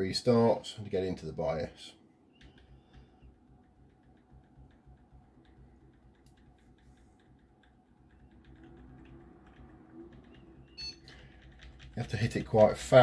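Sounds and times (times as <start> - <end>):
keyboard key tapping: 2.4 - 13.0.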